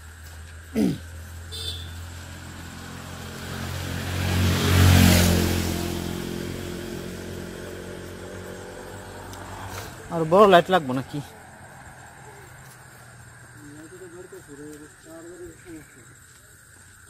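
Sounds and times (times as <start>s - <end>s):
motor vehicle passing by: 1.1s - 14.6s.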